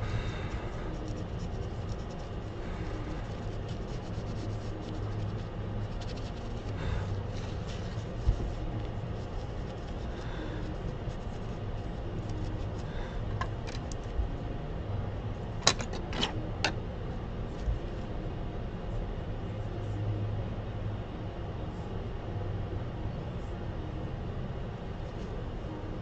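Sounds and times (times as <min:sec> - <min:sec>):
equipment humming: 0:00.0 - 0:20.0.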